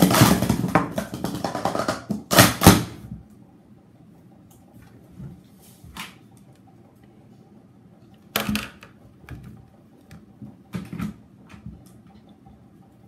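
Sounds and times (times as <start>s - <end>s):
plastic cups clacking: 0.0s - 2.8s.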